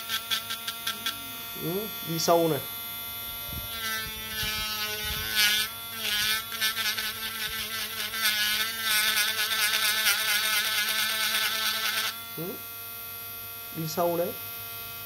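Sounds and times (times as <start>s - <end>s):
rotary tool whining: 0.0s - 12.6s
burr cutting into wood: 3.6s - 12.2s.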